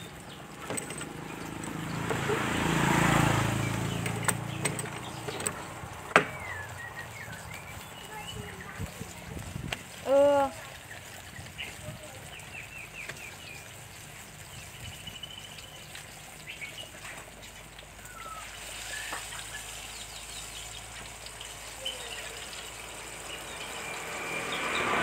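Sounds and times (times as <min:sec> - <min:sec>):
fritters sizzling in hot oil: 0:00.0 - 0:25.0
bird chirps: 0:06.3 - 0:08.8, 0:14.5 - 0:16.9.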